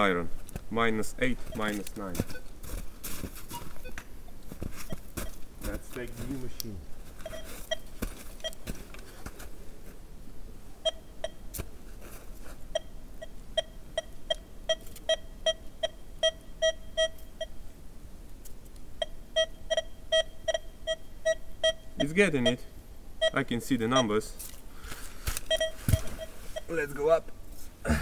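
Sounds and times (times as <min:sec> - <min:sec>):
metal detector beeps: 0:01.5 - 0:02.4, 0:07.2 - 0:08.6, 0:13.6 - 0:17.6, 0:19.0 - 0:22.6, 0:23.2 - 0:24.2, 0:25.5 - 0:26.8.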